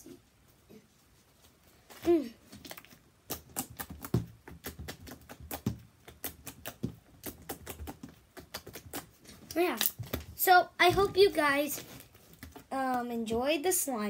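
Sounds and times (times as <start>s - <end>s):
sticky slime clicking and crackling: 2.6s - 10.3s.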